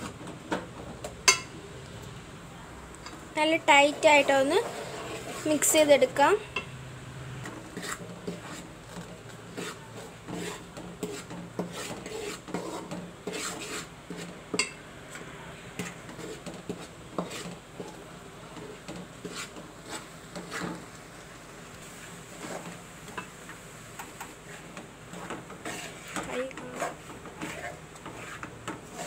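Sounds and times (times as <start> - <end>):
metal spoon scraping metal pot: 3.6 - 5.8, 25.2 - 29.0.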